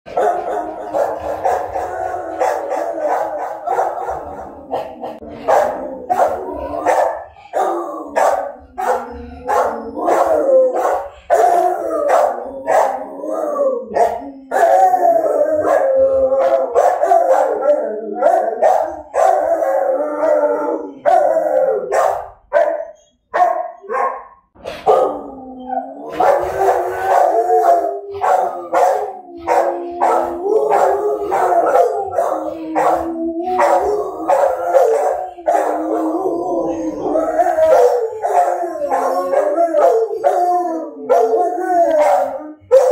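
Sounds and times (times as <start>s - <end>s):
dogs howling: 0.1s - 24.1s, 24.8s - 42.9s
dogs barking and yipping: 0.1s - 42.9s.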